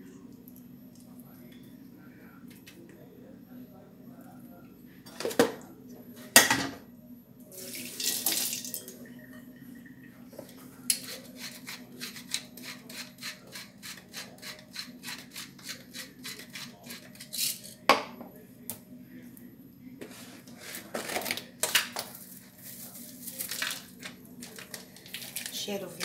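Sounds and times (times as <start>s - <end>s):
pepper grinder grinding: 10.9s - 17.8s.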